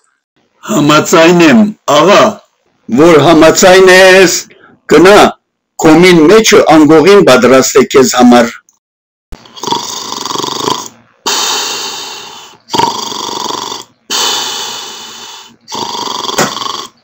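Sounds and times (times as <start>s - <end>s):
man snoring: 9.4s - 17.0s.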